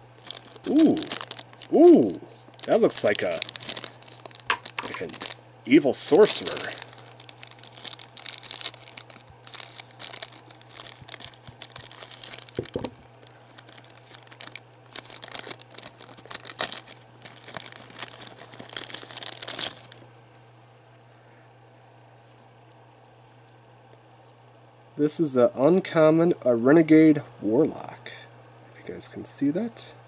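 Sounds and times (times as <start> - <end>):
plastic bag crinkling: 0.1 - 20.0.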